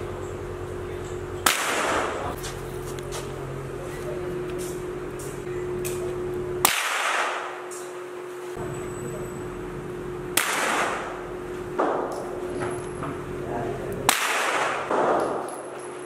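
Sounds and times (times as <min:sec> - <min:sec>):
rifle shots with echo: 0:01.4 - 0:02.2, 0:06.6 - 0:07.6, 0:10.4 - 0:11.2, 0:14.1 - 0:15.4.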